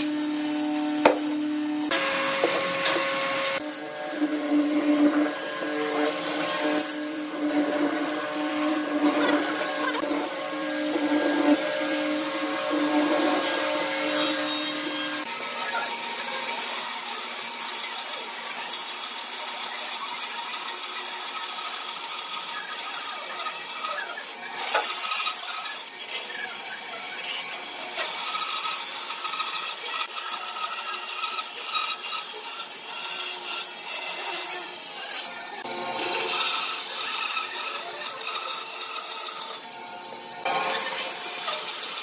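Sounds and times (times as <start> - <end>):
mortising machine humming: 0.0 - 15.7
band saw cutting wood: 0.0 - 42.0.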